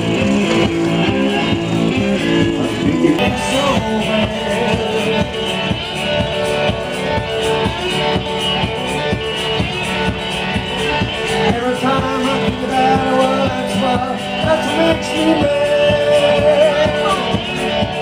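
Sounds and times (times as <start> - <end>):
guitar: 0.0 - 18.0
live blues song: 0.0 - 18.0
person singing: 2.2 - 6.0, 11.2 - 18.0.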